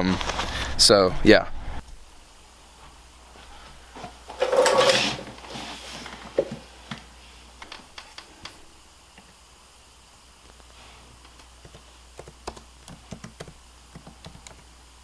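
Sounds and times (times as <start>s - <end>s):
scraping rustle: 3.4s - 6.6s
laptop keys and trackpad clicks: 11.6s - 14.6s.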